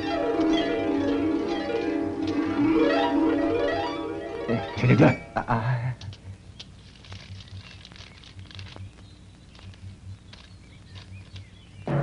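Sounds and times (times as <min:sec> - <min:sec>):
steady low hum: 0:00.0 - 0:12.0
paper letter crinkling: 0:06.0 - 0:11.6.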